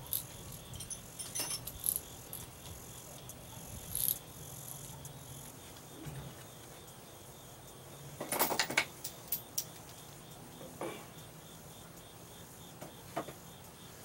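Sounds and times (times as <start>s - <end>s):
wood and chain links knocking: 0.0s - 2.1s
insects chirping: 0.0s - 14.0s.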